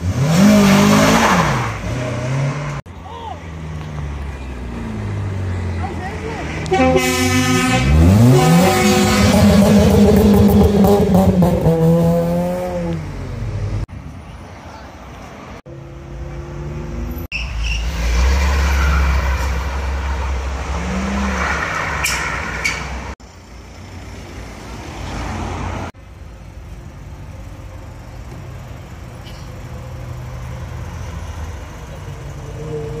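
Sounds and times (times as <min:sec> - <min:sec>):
car engine revving in burnout: 0:00.0 - 0:02.8, 0:07.1 - 0:13.0
car engines idling in traffic: 0:22.0 - 0:24.9, 0:25.9 - 0:33.0.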